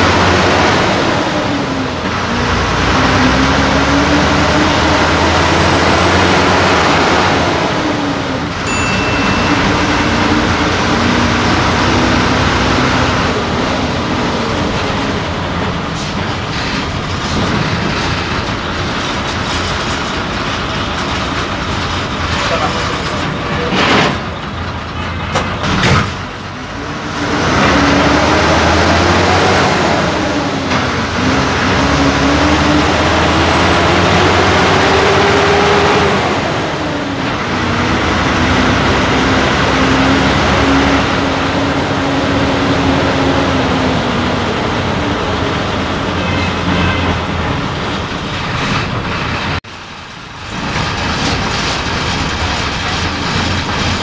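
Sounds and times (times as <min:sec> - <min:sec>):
bus engine rumbling: 0:00.0 - 0:54.0
bus rattle: 0:00.0 - 0:54.0.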